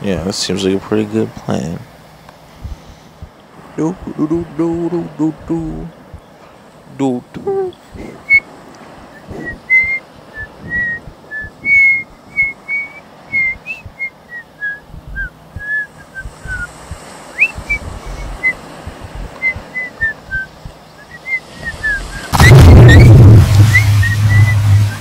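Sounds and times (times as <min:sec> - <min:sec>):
person whistling a tune: 0:09.2 - 0:16.7, 0:17.4 - 0:18.6, 0:19.4 - 0:25.0.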